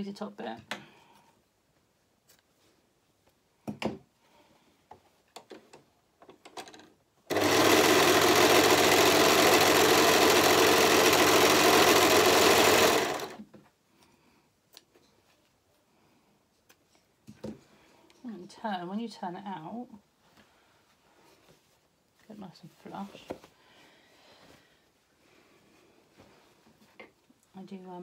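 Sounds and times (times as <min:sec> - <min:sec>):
overlocker sewing machine stitching: 0:07.3 - 0:13.4
knocks and fabric rustles: 0:20.1 - 0:23.6.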